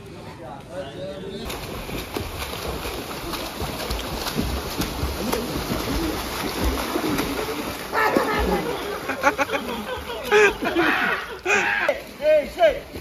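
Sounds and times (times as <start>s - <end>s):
swimmer splashing in pool: 1.4s - 13.0s.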